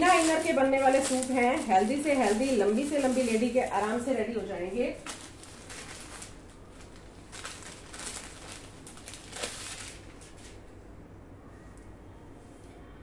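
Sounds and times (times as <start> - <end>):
cloth rustling: 0.0 - 10.6.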